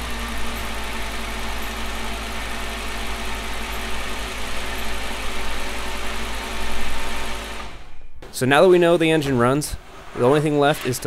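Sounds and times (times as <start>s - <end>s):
car engine idling: 0.0s - 8.3s.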